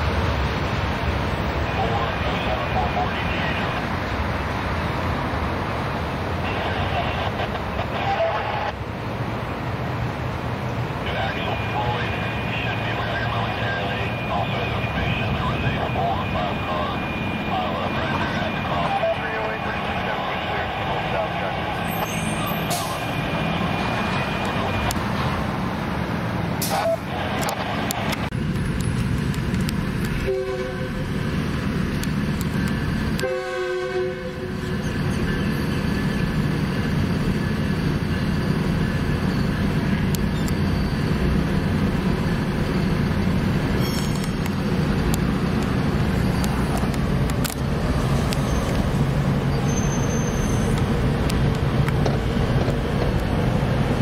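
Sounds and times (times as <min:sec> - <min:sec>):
idling traffic drone: 0:00.0 - 0:54.0
train passing: 0:00.0 - 0:54.0
train horn: 0:30.2 - 0:31.0, 0:33.2 - 0:34.6.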